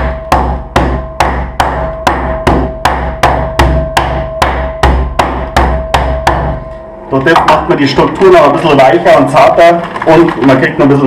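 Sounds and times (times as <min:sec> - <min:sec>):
metal pot pounding meat: 0:00.0 - 0:10.8.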